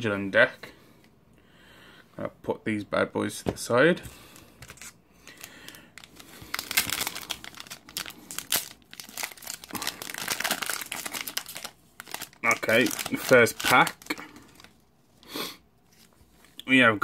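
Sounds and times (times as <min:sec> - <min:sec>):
foil wrapper crinkling: 0:04.6 - 0:14.8.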